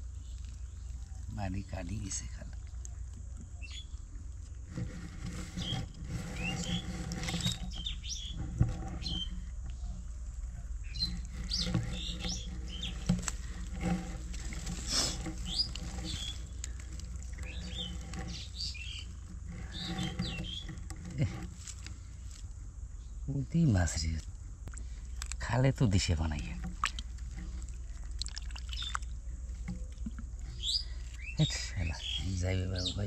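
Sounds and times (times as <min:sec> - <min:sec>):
small birds chirping: 0:00.0 - 0:04.4, 0:05.4 - 0:13.6, 0:14.9 - 0:21.3, 0:21.9 - 0:33.0
steady low hum: 0:00.0 - 0:33.0.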